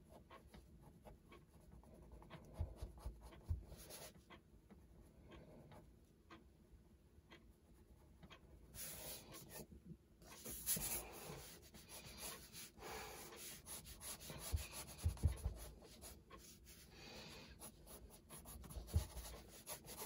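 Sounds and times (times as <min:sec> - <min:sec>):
colored pencil scratching on paper: 0:00.1 - 0:04.2, 0:08.8 - 0:09.6, 0:10.2 - 0:16.9, 0:17.6 - 0:20.0.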